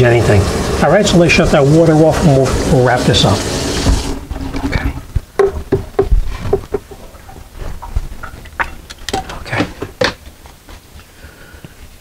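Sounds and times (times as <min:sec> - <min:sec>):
handling knocks and rustles: 0:04.6 - 0:11.1.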